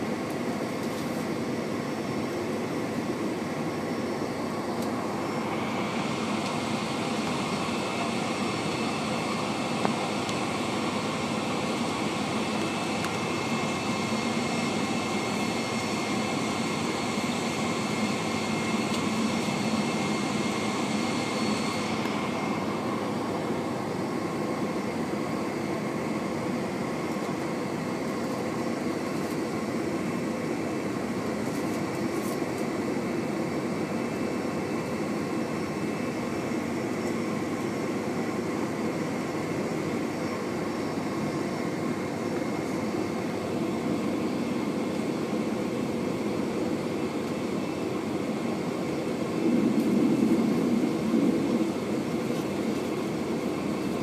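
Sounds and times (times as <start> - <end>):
jet engine rumble in cabin: 0.0 - 54.0
thin high whine: 47.4 - 54.0.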